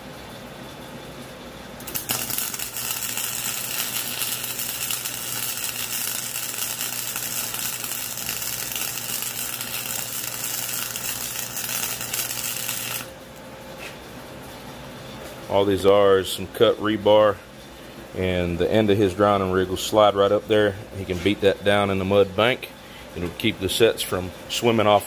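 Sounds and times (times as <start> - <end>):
welder arc crackling: 1.8 - 13.2.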